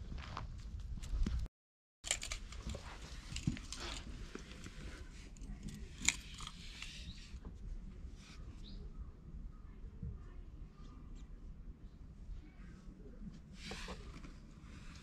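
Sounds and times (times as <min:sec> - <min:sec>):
rustling handling noise: 0:02.0 - 0:07.5.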